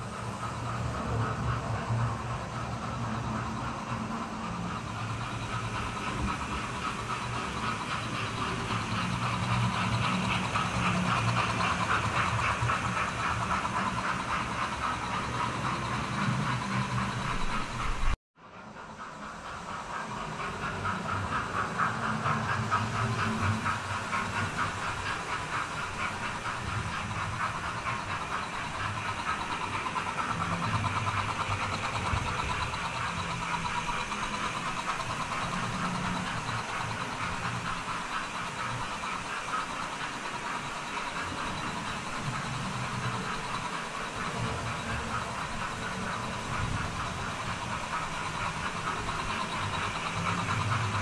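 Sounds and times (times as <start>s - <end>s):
small wheels rattling on rail: 0.0s - 51.0s.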